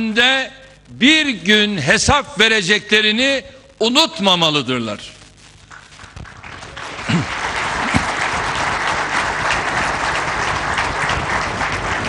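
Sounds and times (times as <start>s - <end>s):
audience applauding: 5.7s - 12.0s.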